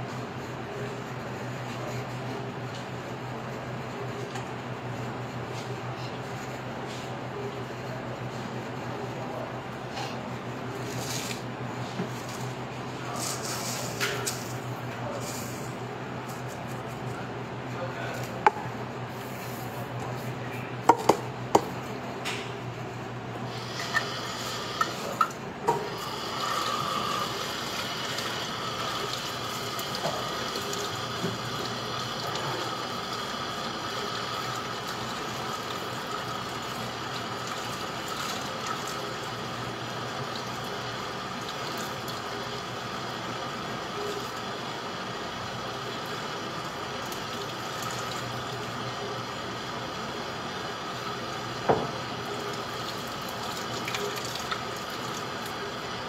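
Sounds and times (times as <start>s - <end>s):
tap water running into a sink: 25.9s - 39.4s, 47.0s - 48.4s, 51.7s - 55.6s.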